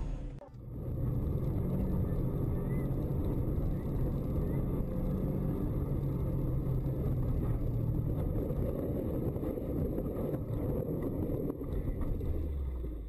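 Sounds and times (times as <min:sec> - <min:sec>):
car engine running: 0:00.0 - 0:13.0
tyre and road noise on snow: 0:00.0 - 0:13.0.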